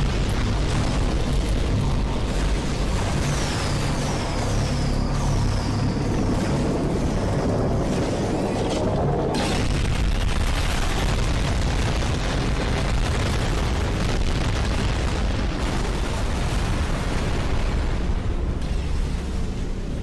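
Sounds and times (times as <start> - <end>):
explosions: 0.0 - 4.3, 9.3 - 18.8.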